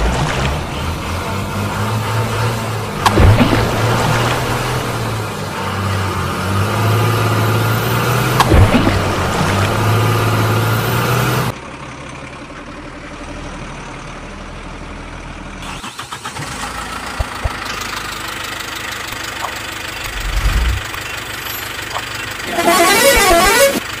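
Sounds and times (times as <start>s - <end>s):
vehicle engine idling: 9.1s - 24.0s
low rumble: 19.9s - 21.0s.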